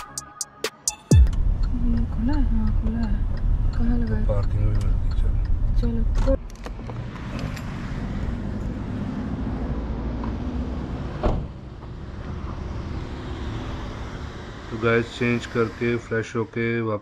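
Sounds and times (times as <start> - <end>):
low vehicle rumble: 1.1 - 16.4.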